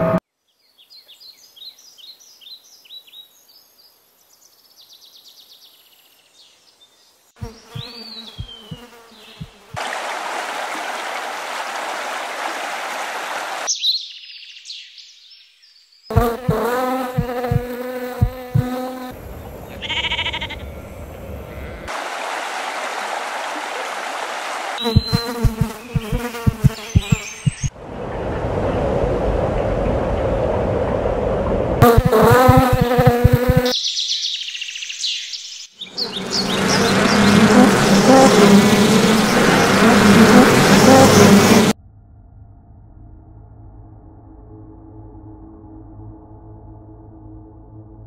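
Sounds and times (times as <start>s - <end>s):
flying insect buzzing: 7.4s - 9.9s, 16.1s - 19.2s, 24.8s - 27.7s, 31.8s - 33.8s, 36.0s - 41.8s
stream rushing over stones: 9.8s - 13.7s, 21.9s - 25.1s
quick high chirps: 24.8s - 27.7s.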